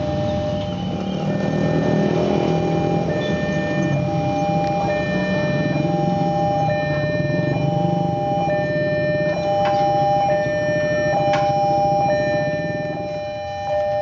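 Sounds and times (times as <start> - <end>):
high beeping: 0.0 - 14.0
level crossing alarm tone: 0.0 - 14.0
street traffic: 0.0 - 14.0.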